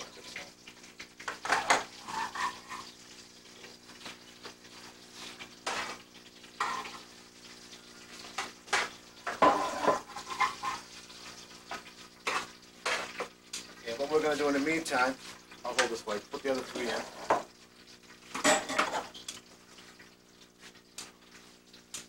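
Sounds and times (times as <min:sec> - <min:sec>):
metal pans and utensils clattering: 0:01.2 - 0:03.0, 0:05.2 - 0:07.1, 0:08.2 - 0:10.9, 0:11.7 - 0:13.4, 0:16.6 - 0:17.5, 0:18.3 - 0:19.4.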